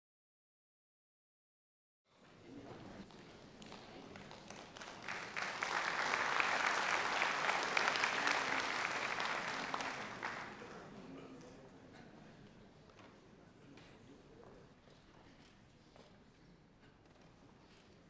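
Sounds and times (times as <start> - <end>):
audience applauding: 4.1 - 10.8.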